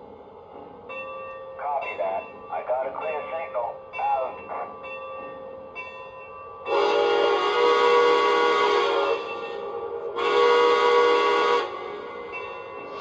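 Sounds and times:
model train steam whistle: 6.7 - 13.0.

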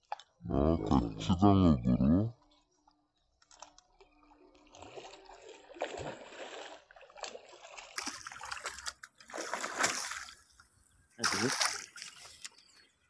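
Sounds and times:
fish splashing at water surface: 4.6 - 10.4, 11.2 - 12.6.

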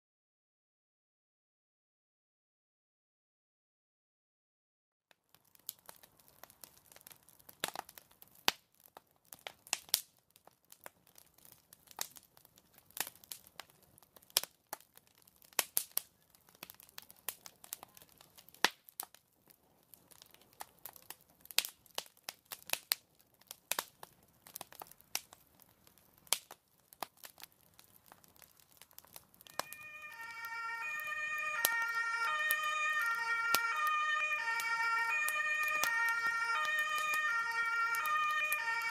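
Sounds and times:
fire crackling and popping: 5.1 - 38.9
fire engine siren: 29.4 - 38.9.

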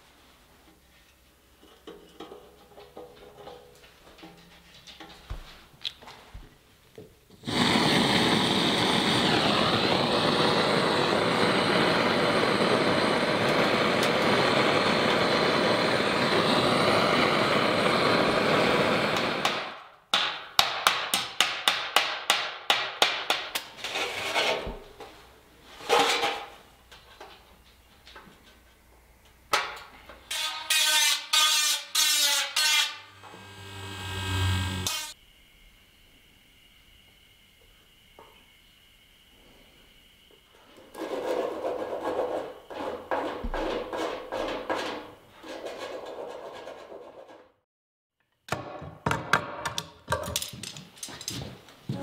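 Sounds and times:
hammer tapping sheet metal: 19.4 - 23.7
rotary tool whining on metal: 31.9 - 35.2.

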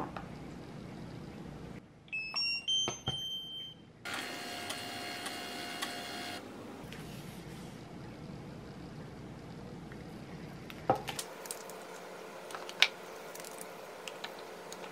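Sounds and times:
label printer whirring: 4.1 - 6.5.

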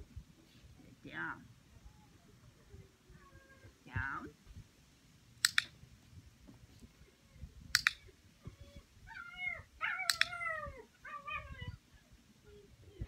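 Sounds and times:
training clicker double clicks: 5.4 - 5.7, 7.7 - 8.0, 10.1 - 10.4
puppy whining: 7.0 - 13.0.

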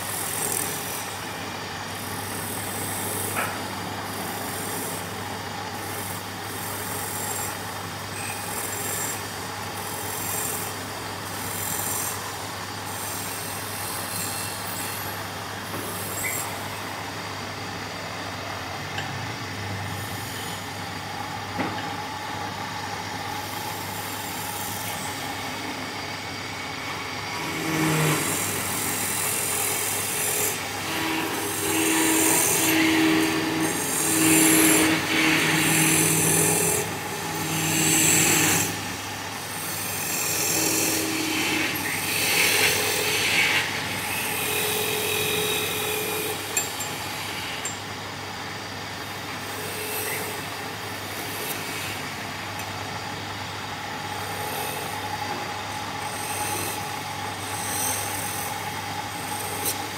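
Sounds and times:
wood lathe humming: 27.4 - 47.8, 53.8 - 59.9.

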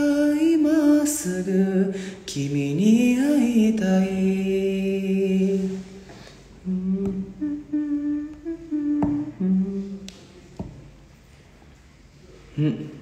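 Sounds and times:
man singing a held note: 6.6 - 10.1
man humming: 6.6 - 10.2, 12.5 - 13.0.

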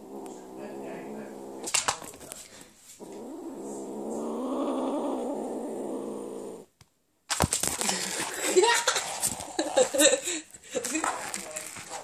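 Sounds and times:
kitten growling: 0.0 - 6.8, 8.0 - 10.2.

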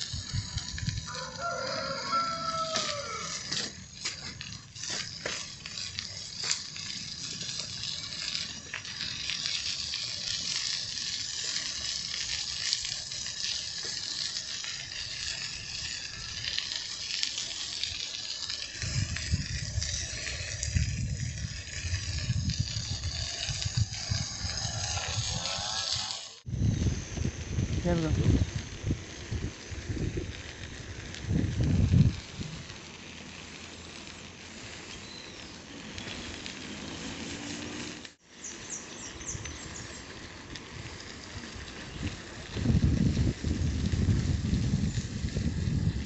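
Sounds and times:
wind buffeting microphone: 0.0 - 1.5, 18.5 - 32.8, 39.2 - 46.0
bicycle tyres hissing on pavement: 0.0 - 46.0.

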